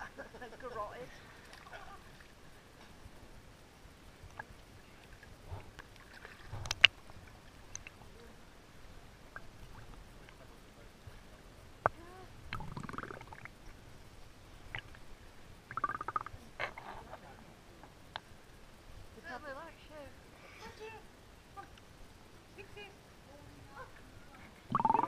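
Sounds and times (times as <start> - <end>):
pool water sloshing and splashing: 0.6 - 2.6, 4.3 - 8.0.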